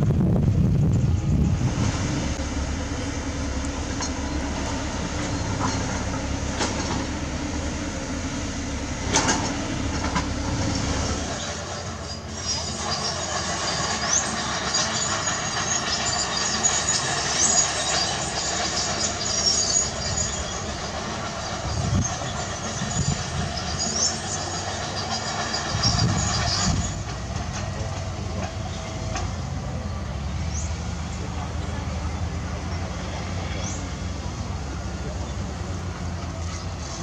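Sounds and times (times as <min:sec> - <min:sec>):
diesel engine rumble: 0:00.0 - 0:37.0
bulldozer tracks squealing and clanking: 0:00.5 - 0:37.0
short rising squeaks: 0:08.8 - 0:27.2.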